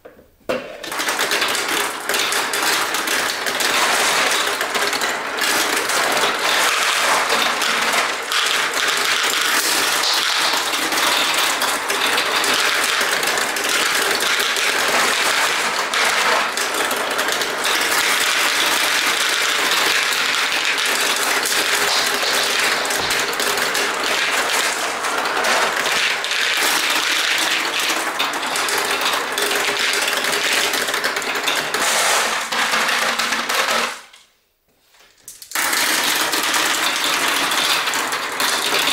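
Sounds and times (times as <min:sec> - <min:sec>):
marbles rattling down plastic run: 0:00.8 - 0:34.2, 0:35.3 - 0:38.9.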